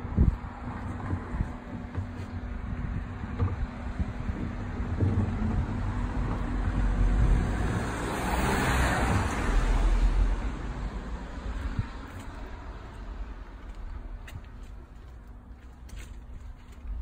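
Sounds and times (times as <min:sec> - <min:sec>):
steady low rumble: 0:00.0 - 0:08.2, 0:09.0 - 0:17.0
car passing by: 0:05.1 - 0:13.5.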